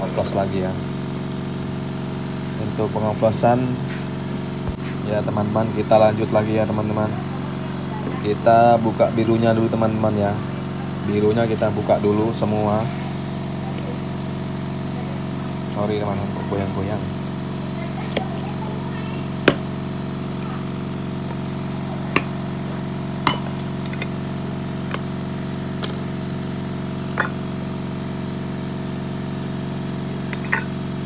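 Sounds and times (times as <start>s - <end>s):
steady machine hum: 11.8s - 31.0s
paint tin lids popping open: 23.3s - 24.2s, 24.8s - 25.1s, 25.8s - 26.1s, 27.2s - 27.4s, 30.3s - 30.8s.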